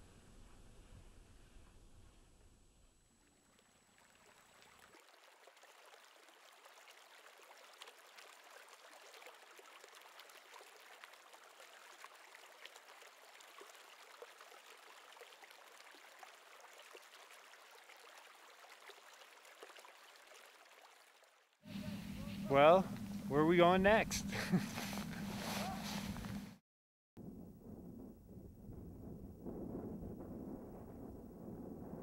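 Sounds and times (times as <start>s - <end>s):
faint running water: 3.1s - 26.4s.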